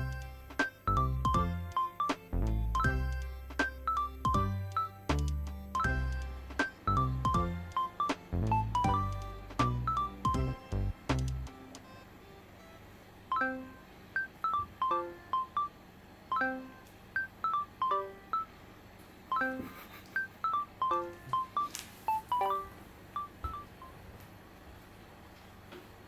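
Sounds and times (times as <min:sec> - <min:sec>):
light melody of bright notes: 0:00.0 - 0:18.5, 0:19.3 - 0:23.9.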